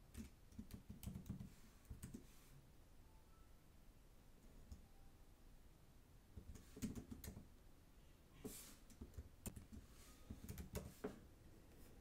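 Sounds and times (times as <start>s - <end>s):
computer keyboard keystrokes: 0.1s - 2.2s, 6.4s - 7.5s, 8.9s - 10.9s.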